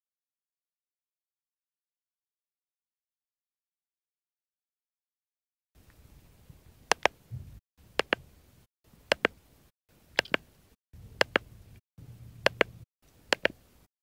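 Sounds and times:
sharp clicks in pairs: 6.9 - 7.2, 8.0 - 8.2, 9.1 - 9.4, 10.2 - 10.4, 11.2 - 11.5, 12.5 - 13.6.

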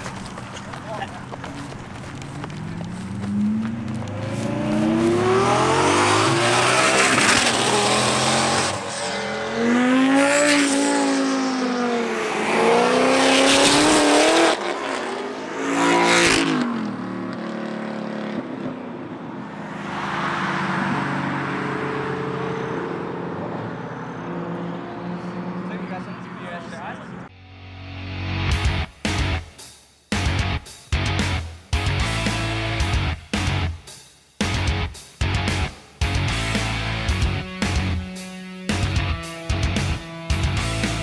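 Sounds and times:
car rolling past: 0.0 - 15.1, 15.8 - 27.3
car engines accelerating hard: 0.0 - 27.3, 38.7 - 41.0.

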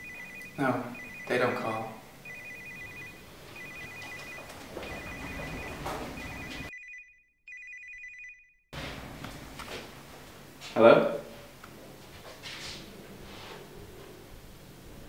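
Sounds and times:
two-tone electronic ringtone: 0.0 - 8.6.

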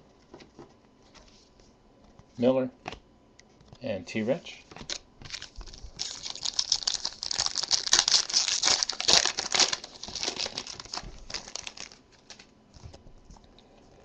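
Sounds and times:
foil wrapper tearing and crinkling: 4.8 - 12.5.

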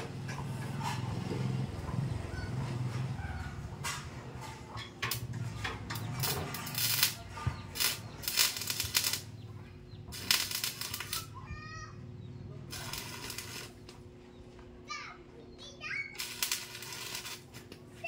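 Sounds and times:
hand tool scraping metal: 16.2 - 17.7.

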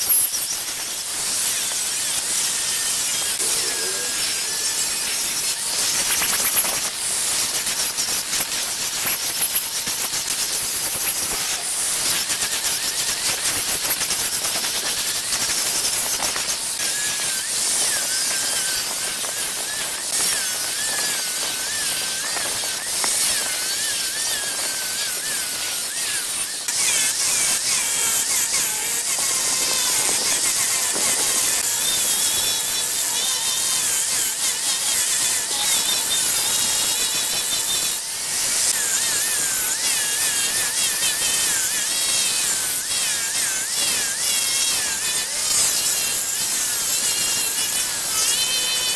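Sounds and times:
abrasive hissing on wood: 0.0 - 48.9
angle grinder motor whine: 0.0 - 48.9.

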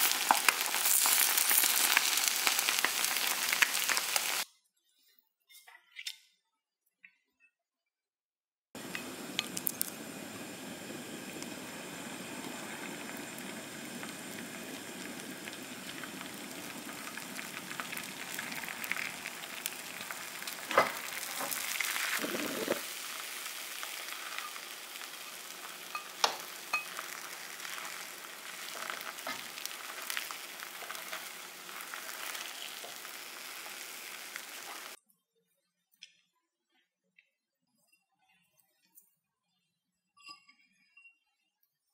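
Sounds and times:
food sizzling in a frying pan: 0.0 - 4.4, 8.8 - 35.0.

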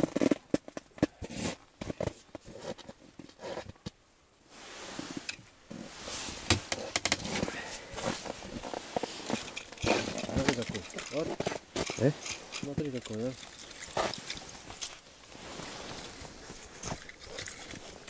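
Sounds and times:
rustling on snow: 4.4 - 18.0
gear clicks and knocks: 8.6 - 15.0.

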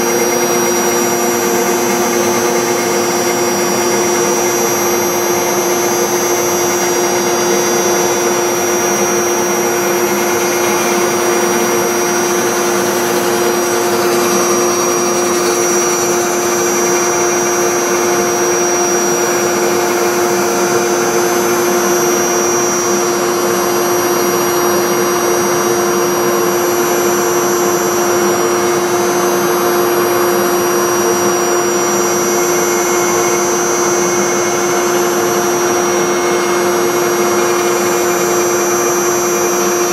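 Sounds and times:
bit cutting wood: 0.0 - 23.0
router spindle whine: 0.0 - 39.9.

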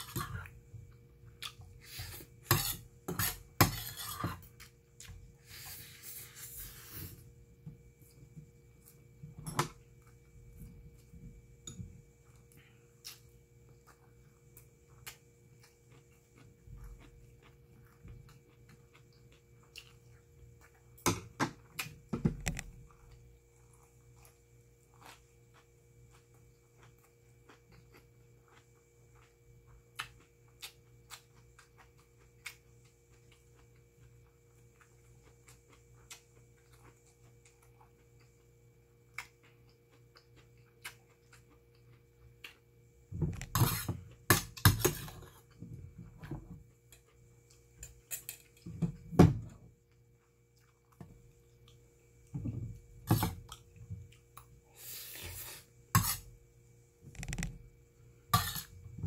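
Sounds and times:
metal spoon scraping a bowl: 1.8 - 4.4, 43.4 - 45.4, 55.1 - 56.3, 58.3 - 58.8
chewing with wet clicks: 25.0 - 42.7.

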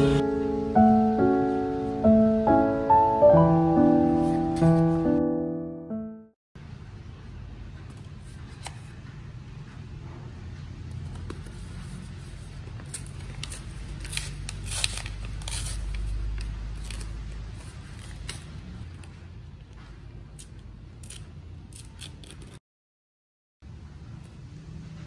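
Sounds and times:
paper crinkling and tearing: 12.4 - 19.2.

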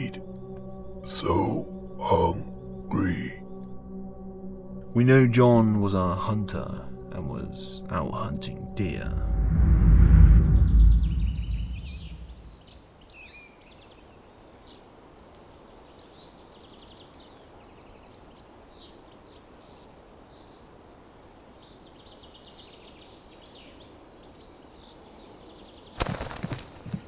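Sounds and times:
deep low rumble: 8.6 - 12.7
birds chirping and twittering: 10.4 - 27.0
soft steady hiss: 12.4 - 25.8.

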